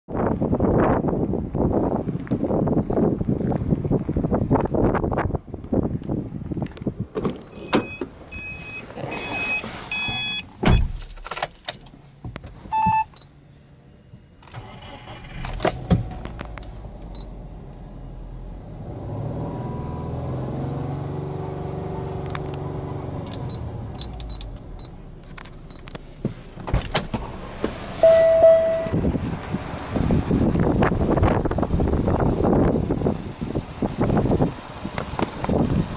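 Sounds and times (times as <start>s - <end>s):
electronic warning beeps: 7.6s - 10.8s, 12.7s - 13.3s, 28.0s - 29.0s
car door thump: 10.0s - 11.1s
car engine starting and revving: 14.5s - 35.9s
short chime: 28.0s - 29.0s.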